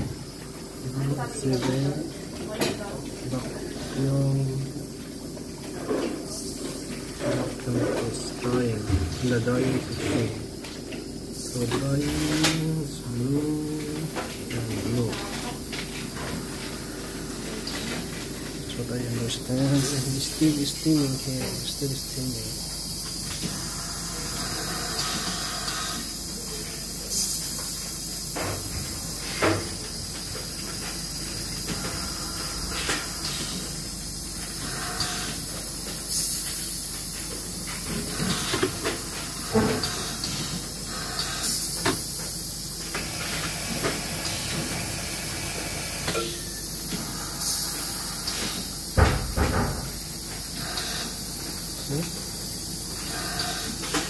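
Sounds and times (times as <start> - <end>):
steam hissing from pipes: 18.9 - 54.0.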